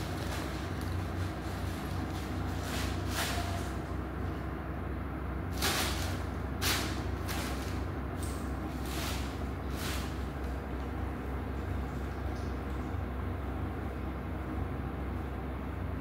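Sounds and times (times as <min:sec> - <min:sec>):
plastic bag and tinsel rustling: 0:00.0 - 0:03.9, 0:05.5 - 0:07.9
steady low hum: 0:00.0 - 0:16.0.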